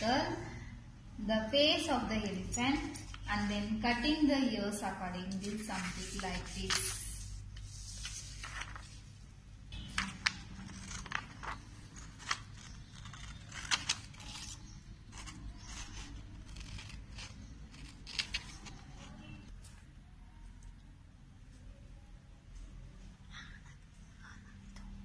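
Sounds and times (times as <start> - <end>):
scissors snipping paper: 10.5 - 18.8.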